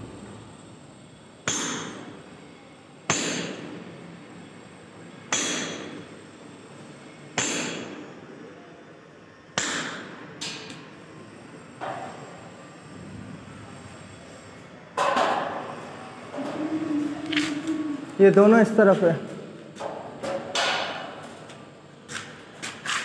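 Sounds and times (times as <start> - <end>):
hammer striking ceiling: 1.4 - 2.1, 3.1 - 3.8, 5.3 - 6.0, 7.4 - 8.0, 9.6 - 10.7, 19.8 - 21.3.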